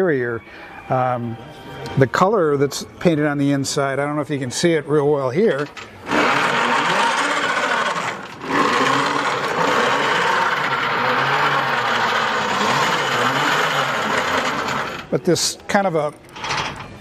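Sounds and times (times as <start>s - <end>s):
gearing whirring: 5.6s - 15.1s.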